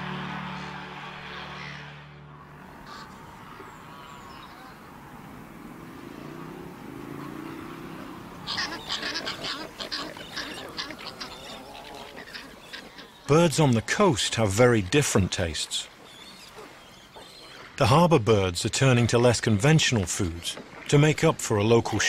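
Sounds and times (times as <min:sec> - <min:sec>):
pelicans murmuring: 0:02.5 - 0:18.0
pelicans clattering calls and clicks: 0:06.2 - 0:17.8, 0:18.8 - 0:22.0.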